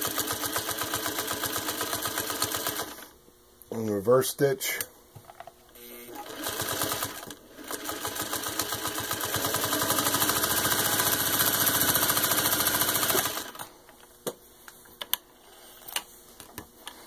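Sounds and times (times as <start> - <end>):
sewing machine stitching: 0.0 - 3.1, 6.0 - 13.7.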